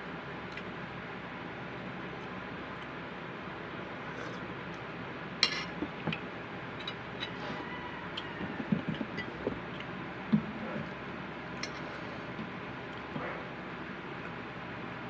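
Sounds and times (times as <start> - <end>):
dishes clicking and knocking: 8.5 - 9.8.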